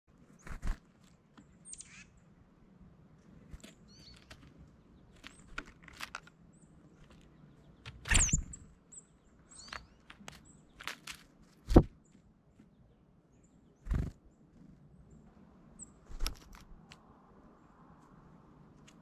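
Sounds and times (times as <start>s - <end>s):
wing flutters: 0.3s - 1.2s, 3.5s - 6.3s, 7.0s - 8.7s, 13.8s - 14.7s, 16.0s - 16.9s
high thin bird chirps: 1.6s - 2.1s, 3.6s - 4.4s, 7.0s - 11.1s.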